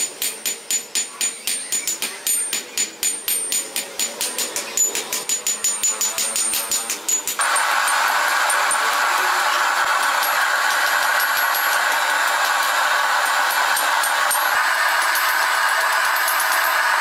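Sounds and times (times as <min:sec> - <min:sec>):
hammer striking hot steel on anvil: 0:00.0 - 0:17.0.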